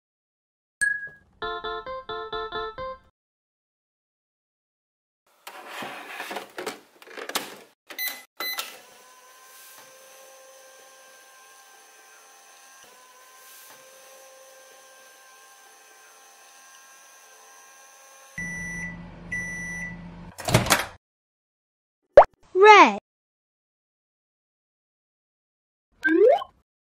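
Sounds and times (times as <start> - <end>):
button beeps: 26.0 - 26.5.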